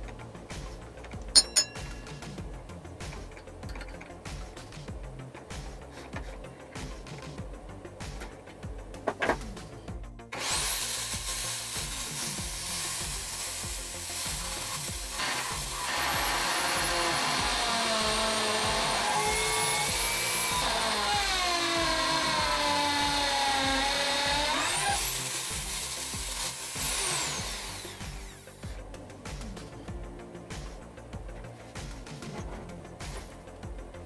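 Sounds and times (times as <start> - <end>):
electric drill cutting chipboard: 10.3 - 28.7.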